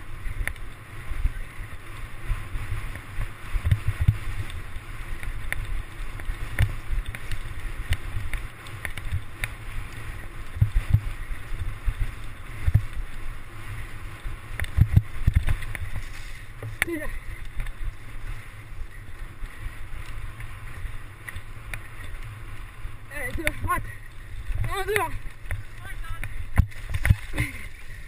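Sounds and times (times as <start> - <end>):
bike rattling over rough trail: 0.0 - 28.0
wind rumbling on microphone: 0.0 - 28.0
bike frame knocks and clicks: 2.9 - 9.6.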